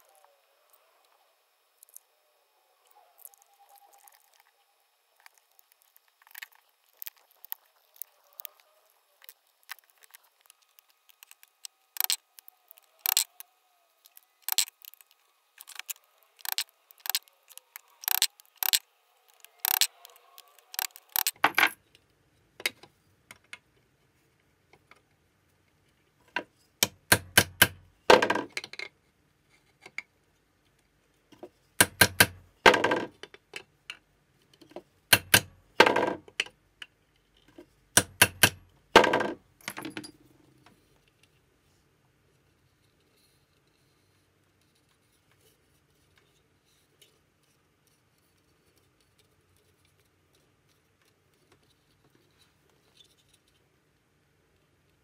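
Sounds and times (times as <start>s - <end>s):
metal parts clinking and knocking: 11.2s - 12.2s, 13.0s - 13.3s, 14.5s - 21.8s, 39.0s - 40.2s.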